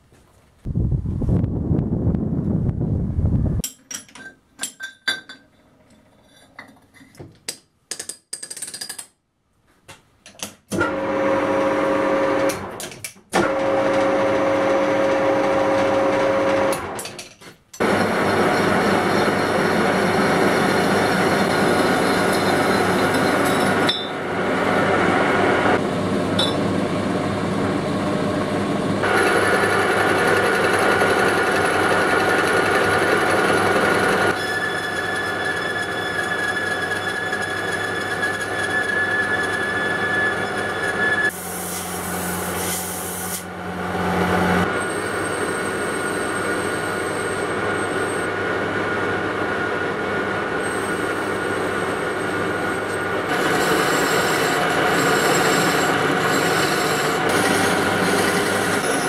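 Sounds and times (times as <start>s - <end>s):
metal lathe cutting steel: 17.8s - 25.8s, 29.0s - 59.0s.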